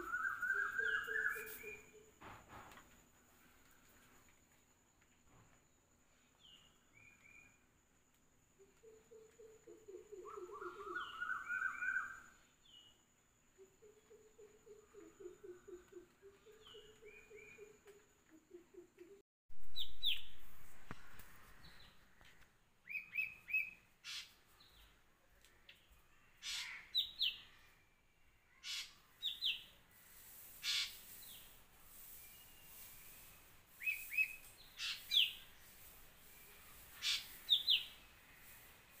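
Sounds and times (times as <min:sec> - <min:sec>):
birds chirping: 0:00.0 - 0:02.1, 0:25.6 - 0:39.0
harsh rasping bird calls: 0:22.9 - 0:24.5, 0:26.4 - 0:27.6, 0:28.5 - 0:29.6, 0:30.6 - 0:31.6, 0:33.8 - 0:35.6, 0:36.6 - 0:38.7.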